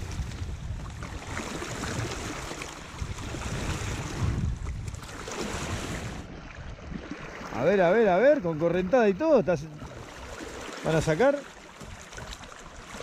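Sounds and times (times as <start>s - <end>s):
wind buffeting microphone: 0.0s - 10.6s
choppy sea water splashing: 0.0s - 13.0s.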